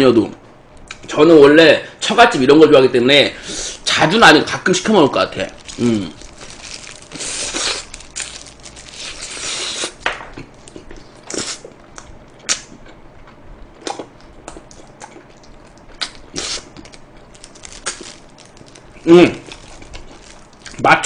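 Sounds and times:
fried chicken crunching: 5.3 - 11.7, 13.8 - 20.9.

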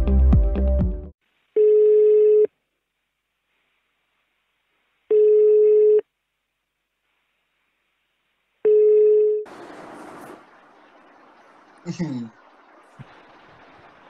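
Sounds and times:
call ringing tone beeps: 1.6 - 2.5, 5.1 - 6.0, 8.7 - 9.5.

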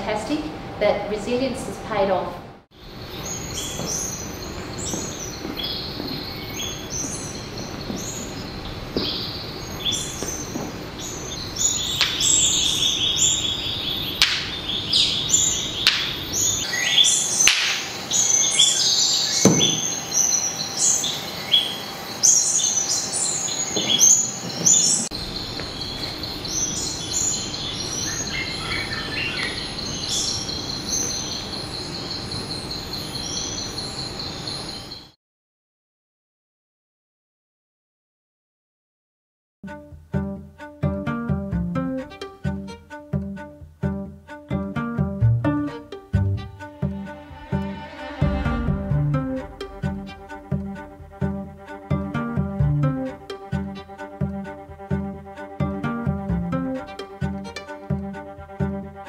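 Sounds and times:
steady high buzz: 0.0 - 34.8, 44.2 - 59.0
birds chirping and whistling: 2.8 - 35.1.

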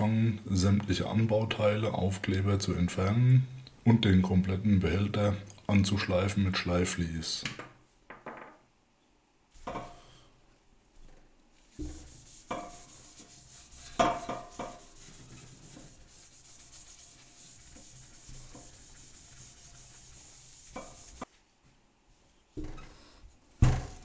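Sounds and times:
abrasive pad rubbing painted steel: 10.9 - 21.5
knocks and bumps on metal tank: 23.6 - 24.0.

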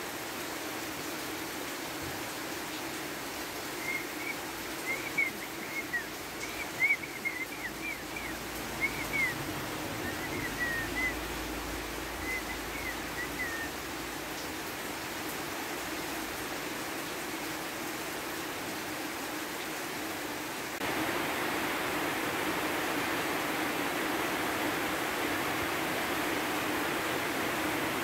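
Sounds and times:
steady rain hiss: 0.0 - 28.0
bird chirping: 3.8 - 11.2, 12.2 - 13.8.

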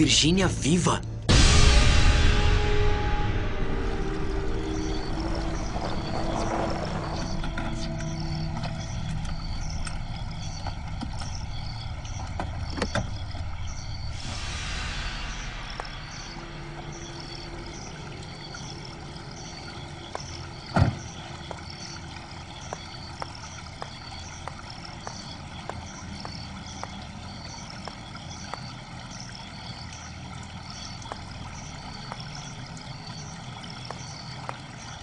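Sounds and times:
water from a fountain: 2.0 - 35.0
car door shutting: 20.7 - 21.1.

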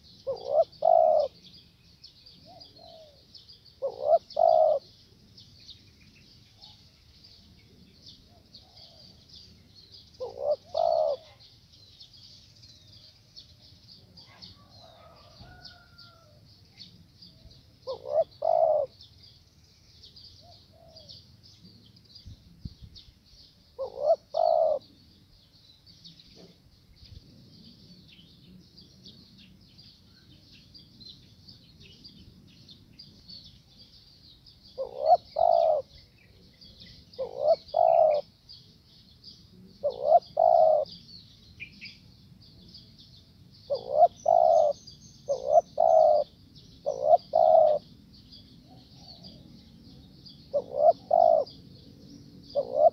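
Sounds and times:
dove cooing: 0.0 - 1.5, 2.4 - 4.9, 10.2 - 11.4, 17.8 - 19.0, 20.4 - 21.1, 23.8 - 24.9, 34.8 - 36.4, 37.2 - 38.3, 39.6 - 41.0, 43.7 - 47.9, 50.5 - 51.6, 52.4 - 52.9.

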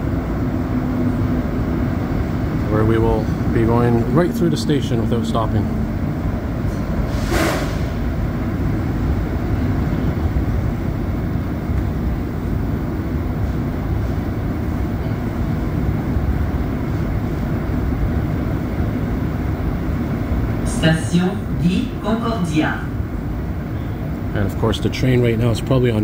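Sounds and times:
train rumbling: 0.0 - 26.0
brief hiss: 7.1 - 8.0.

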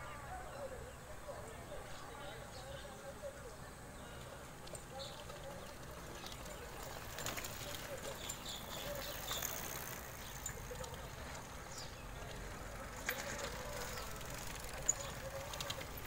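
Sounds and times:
bike tyres rolling on dirt: 1.5 - 16.0
small bike clicks: 4.2 - 16.0.

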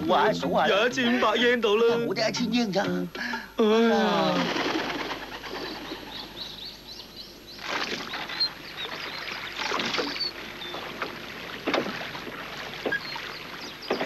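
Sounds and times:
small birds chirping: 4.0 - 14.0
oars splashing in water: 7.6 - 14.0.

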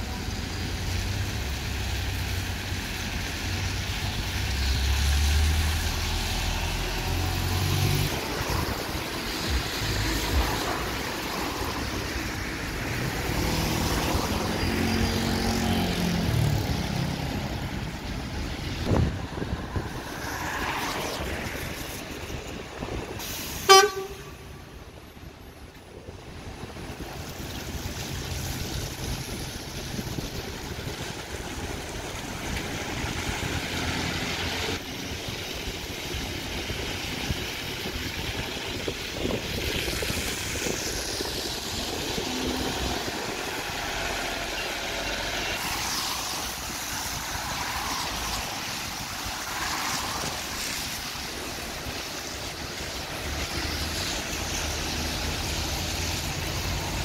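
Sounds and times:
buses pulling away and passing: 0.0 - 57.0
street traffic: 0.0 - 57.0
tyres on wet road: 0.0 - 57.0.

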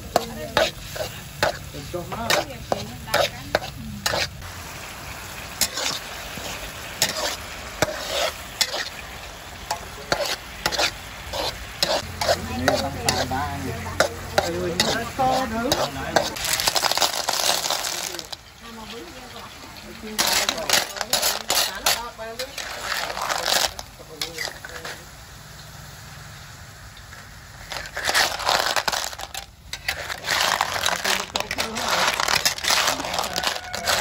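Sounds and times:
metal spatula scraping a wok: 0.0 - 4.5, 5.4 - 25.1, 27.1 - 34.0
sauce bubbling and sizzling: 0.0 - 34.0
shells clattering into a pan: 14.0 - 19.2, 19.8 - 25.0, 27.6 - 34.0.

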